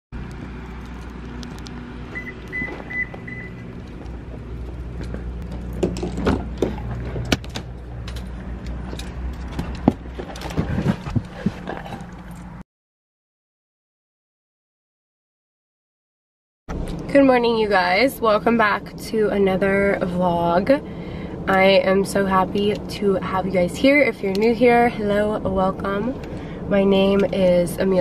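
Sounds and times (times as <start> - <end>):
steady low rumble: 0.2 - 12.6, 16.7 - 28.0
short high beeps: 2.2 - 3.6.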